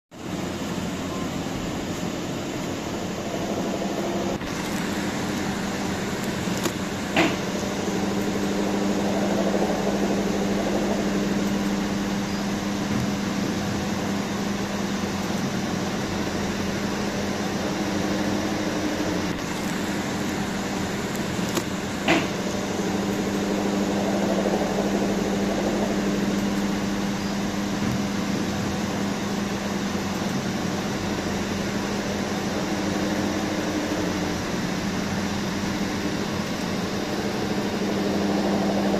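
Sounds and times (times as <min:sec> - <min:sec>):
mechanical hum with low drone: 0:00.1 - 0:38.9
sharp click: 0:06.2 - 0:07.4.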